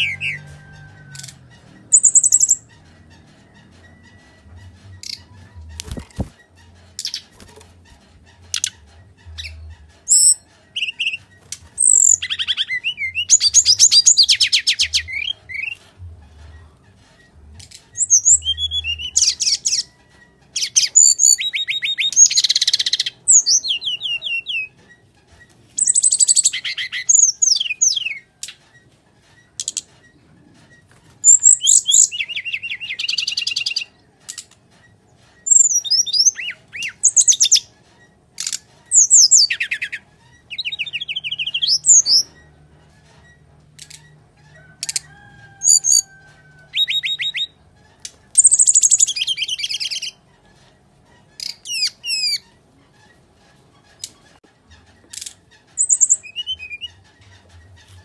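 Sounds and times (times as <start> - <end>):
bird singing high trills: 0.0 - 1.2, 8.6 - 15.8, 18.0 - 19.9, 38.9 - 42.4, 45.1 - 47.6, 48.4 - 50.2, 55.8 - 57.0.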